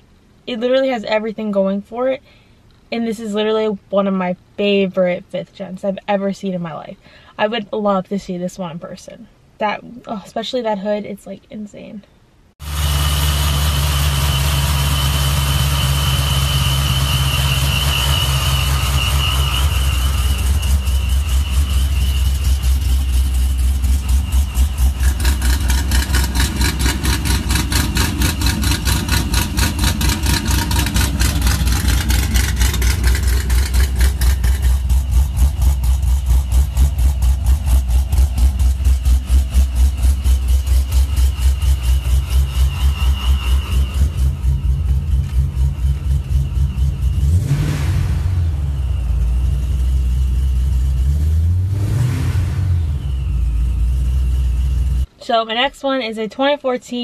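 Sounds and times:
car engine idling: 0:12.6 - 0:55.2
supercharger whine: 0:12.6 - 0:55.2.

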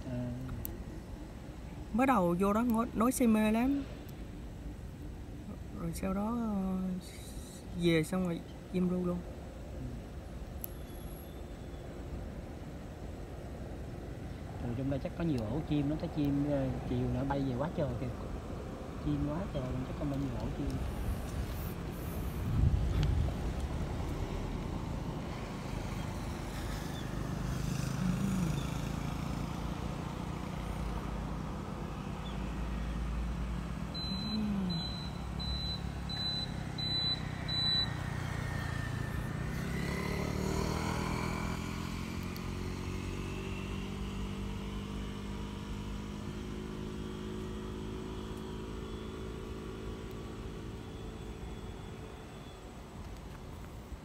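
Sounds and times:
vehicle engines rumbling: 0:00.0 - 0:54.0
vehicle passing: 0:19.0 - 0:51.2
short high peeps: 0:34.0 - 0:38.0.

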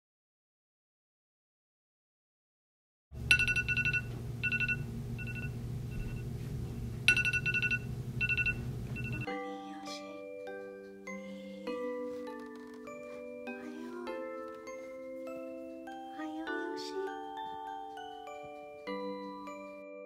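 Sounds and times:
steady low buzz: 0:03.2 - 0:09.3
phone alarm beeps: 0:03.3 - 0:06.3, 0:07.1 - 0:09.3
chime-like music notes: 0:07.1 - 0:20.0.

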